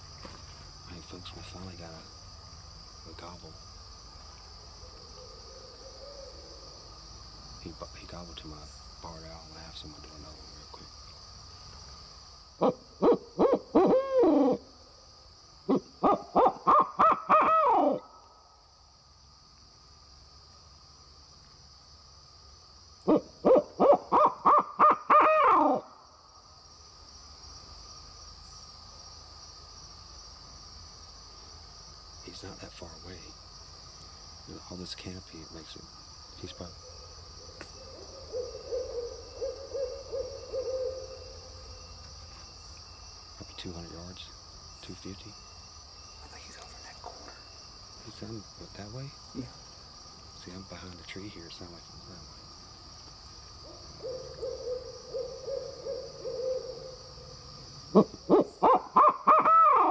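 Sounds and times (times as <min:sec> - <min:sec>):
insects hissing: 0:00.0 - 0:59.9
owl call hoots: 0:04.8 - 0:06.7, 0:12.6 - 0:14.8, 0:15.6 - 0:18.3, 0:23.0 - 0:26.0, 0:36.8 - 0:41.7, 0:53.7 - 0:57.2, 0:57.9 - 0:59.9.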